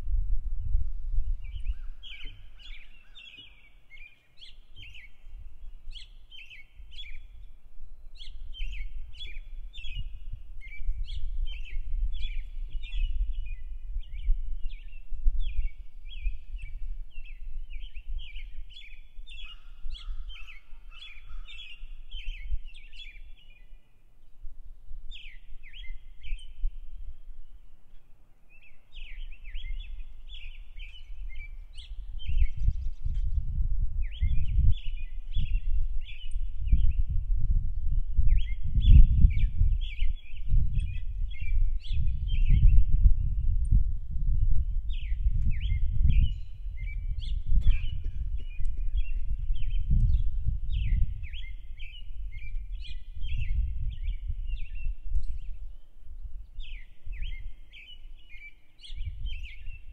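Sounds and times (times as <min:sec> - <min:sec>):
songbirds chirping: 0:01.0 - 0:59.9.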